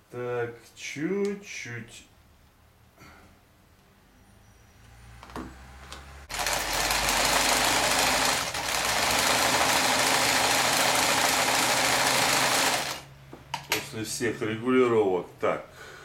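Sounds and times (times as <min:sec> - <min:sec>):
electric sewing machine stitching: 0:06.3 - 0:13.1.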